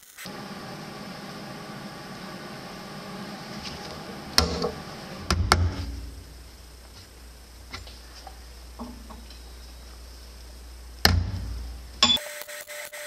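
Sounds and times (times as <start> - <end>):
air compressor running: 0.3 - 6.8
low hum: 0.3 - 12.2
drive belt slapping: 1.2 - 6.2.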